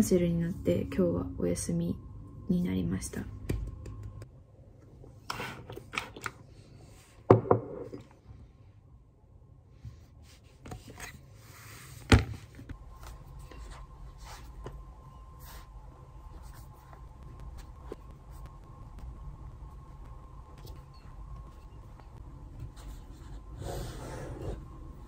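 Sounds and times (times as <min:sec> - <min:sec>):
knocks on a desk: 0:07.3 - 0:07.8.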